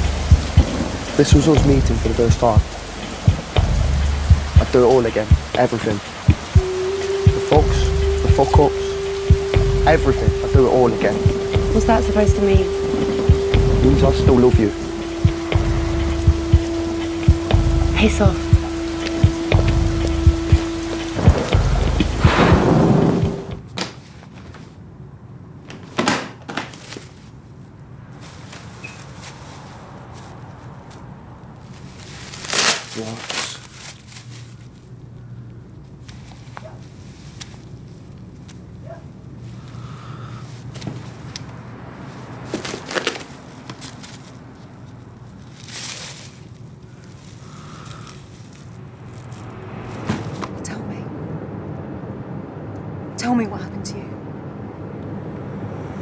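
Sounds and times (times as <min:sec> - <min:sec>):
heavy rain pouring: 0:00.0 - 0:23.7
steady low hum: 0:00.0 - 0:23.7
low thumps: 0:00.0 - 0:23.8
plastic wrapping crinkling: 0:28.1 - 0:35.2, 0:42.1 - 0:49.5.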